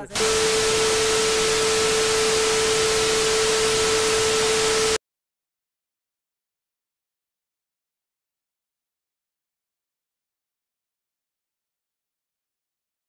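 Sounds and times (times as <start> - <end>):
mid-pitched test tone: 0.0 - 5.0
television static hiss: 0.0 - 5.0.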